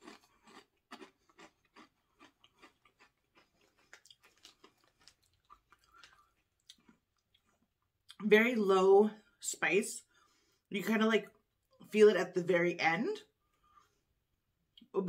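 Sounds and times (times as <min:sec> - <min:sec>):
person chewing crisp chips: 0:00.0 - 0:08.2.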